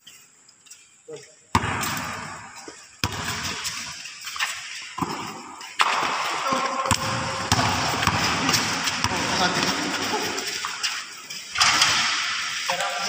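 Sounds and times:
court noise: 0:01.5 - 0:03.9, 0:04.9 - 0:13.0
basketball bouncing: 0:01.5 - 0:10.5.

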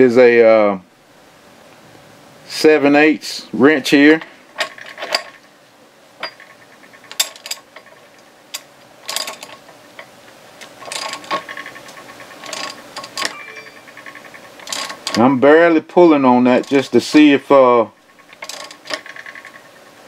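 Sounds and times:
socket ratchet clicking: 0:13.9 - 0:15.2.

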